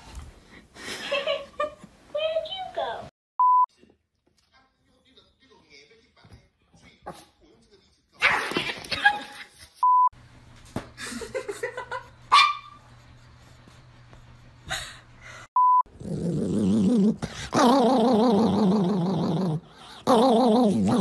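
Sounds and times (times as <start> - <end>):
small dog yipping: 12.3 - 12.8.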